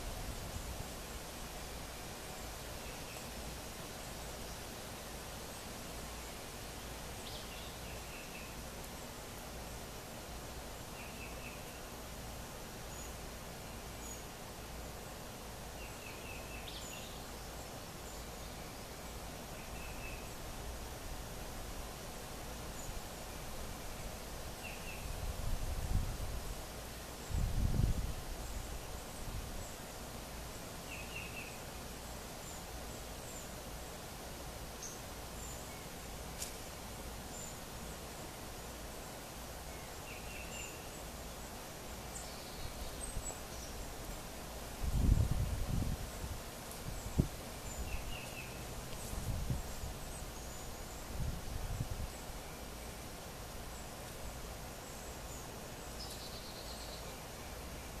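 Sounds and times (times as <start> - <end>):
steady background hiss: 0.0 - 58.0
faint click: 36.4 - 36.7.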